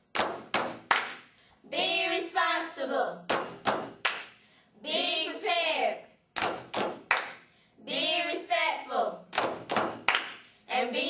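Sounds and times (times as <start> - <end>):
sharp hand claps: 0.1 - 1.3, 3.3 - 4.4, 6.4 - 7.5, 9.3 - 10.5
children chanting in unison: 1.7 - 3.3.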